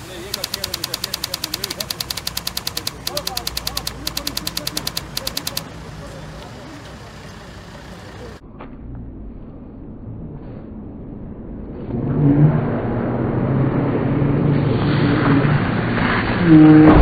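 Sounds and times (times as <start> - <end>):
vehicle engine hum: 0.0 - 12.2.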